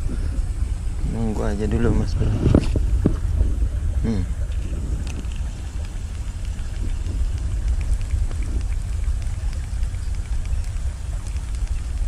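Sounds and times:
wind buffeting microphone: 0:00.0 - 0:12.0
faint ticks: 0:05.0 - 0:12.0.

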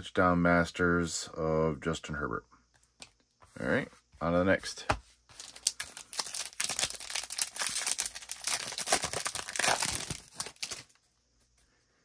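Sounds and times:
foil wrapper tearing and crinkling: 0:05.4 - 0:11.0.

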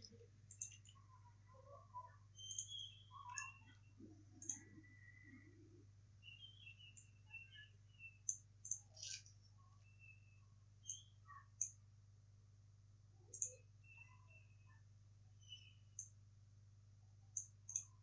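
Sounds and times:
computer mouse clicks: 0:00.0 - 0:01.0, 0:02.4 - 0:05.4, 0:08.2 - 0:09.4, 0:10.8 - 0:11.8, 0:13.3 - 0:14.0, 0:17.3 - 0:18.0
faint high chirps: 0:00.0 - 0:11.9, 0:13.2 - 0:16.2, 0:17.3 - 0:18.0.

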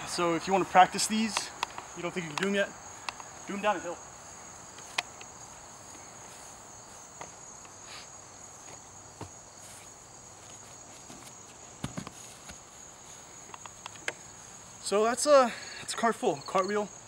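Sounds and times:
crickets chirring: 0:00.0 - 0:17.0
bare feet thudding on grass: 0:08.0 - 0:14.3.

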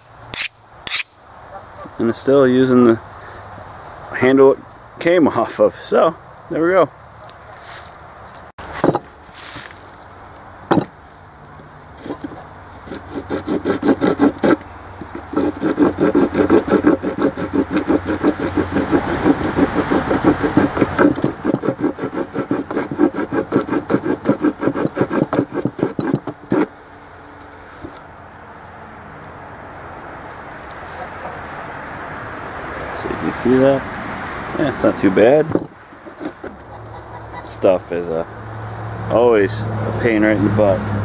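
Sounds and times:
file rasping in wood: 0:00.0 - 0:01.1, 0:12.0 - 0:26.8, 0:34.6 - 0:36.9
knocks on wood: 0:10.7 - 0:10.9, 0:35.5 - 0:35.8.

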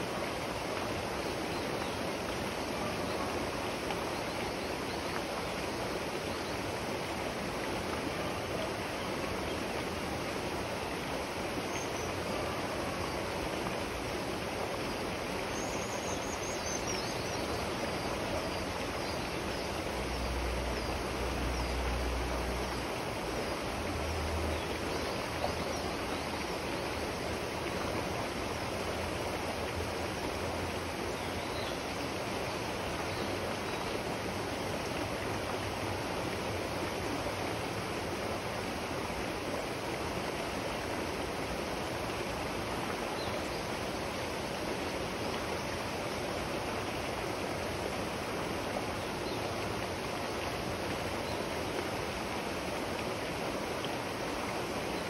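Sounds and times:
river water rushing over rocks: 0:00.0 - 0:55.0.

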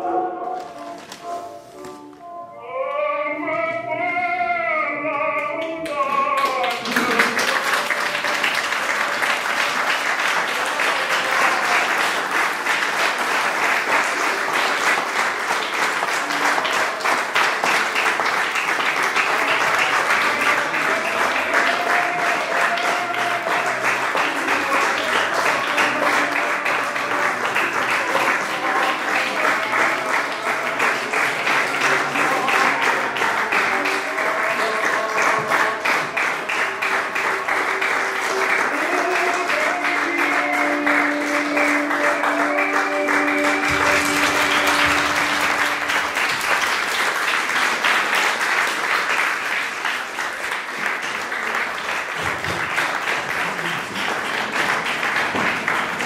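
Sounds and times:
faint music: 0:00.0 - 0:06.6
audience applauding: 0:05.8 - 0:56.0
voices singing: 0:20.1 - 0:35.9.

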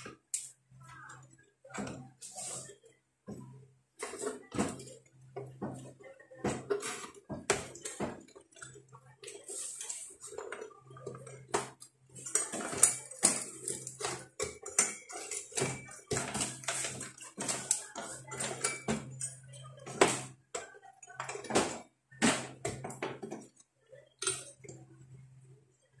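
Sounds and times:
metal heatsink clinking and rattling: 0:06.7 - 0:20.2.

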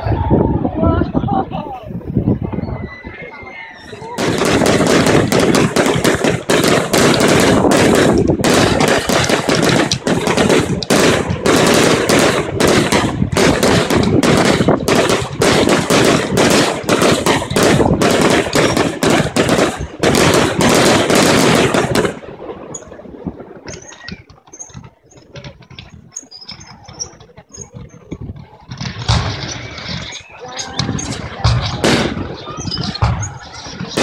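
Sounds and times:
firework fountain crackling: 0:03.9 - 0:34.0.

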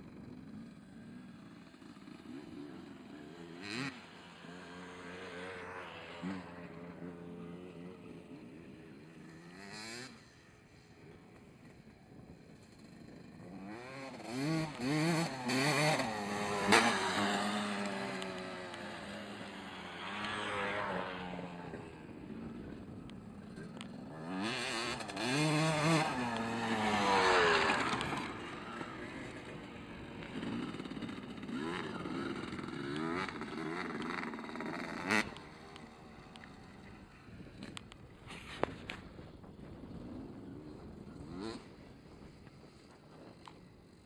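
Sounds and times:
dirt bike engine revving: 0:01.1 - 0:10.4, 0:12.6 - 0:22.6, 0:23.4 - 0:37.7.

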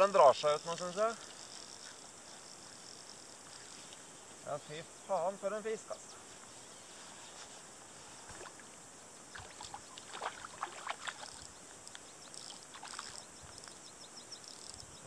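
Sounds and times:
background hiss: 0:00.0 - 0:15.0
water splashing and sloshing: 0:08.2 - 0:11.6, 0:12.4 - 0:13.3.

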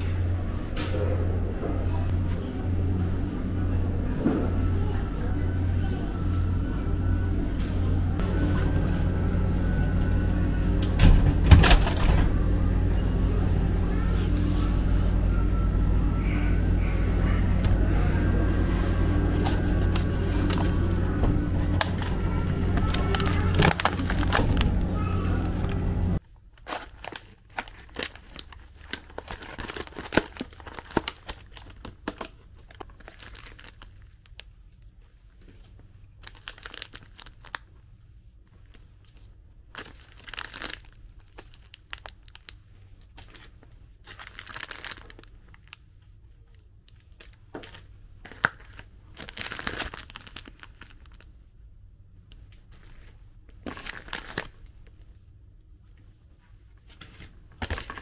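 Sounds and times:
plastic packaging crinkling: 0:18.4 - 0:37.7, 0:38.6 - 0:45.8, 0:46.9 - 0:51.3, 0:52.6 - 0:55.1, 0:57.1 - 0:58.0.

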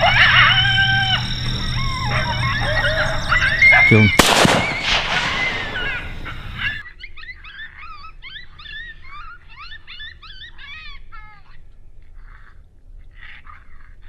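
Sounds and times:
coyotes yipping: 0:00.0 - 0:11.4
rifle shot echo: 0:04.1 - 0:06.8.

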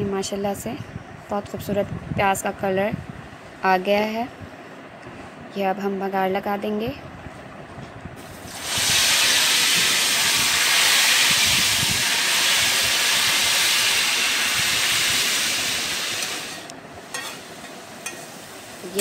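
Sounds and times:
hot oil sizzling in a pot: 0:08.2 - 0:19.0.

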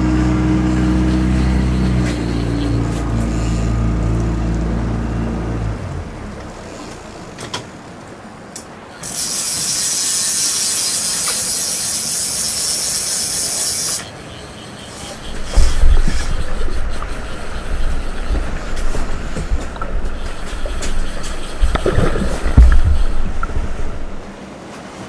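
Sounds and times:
boat motor running: 0:00.0 - 0:08.3, 0:12.6 - 0:24.4
fishing reel ratchet buzzing: 0:09.0 - 0:14.1.

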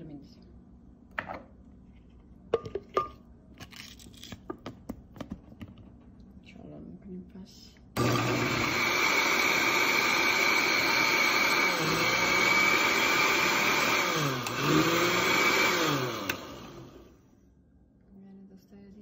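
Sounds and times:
blender motor whirring: 0:08.0 - 0:17.2.

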